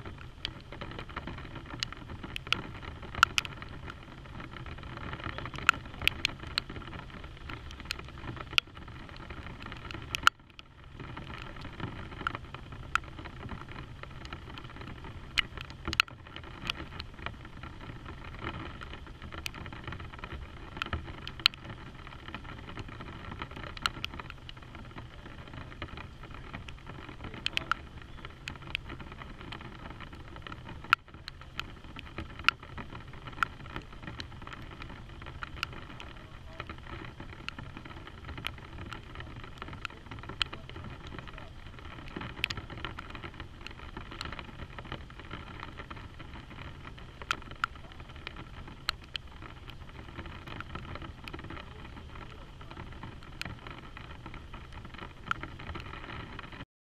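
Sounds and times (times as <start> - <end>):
raindrops ticking on hard surface: 0.0 - 56.6
steady rain: 0.0 - 56.6.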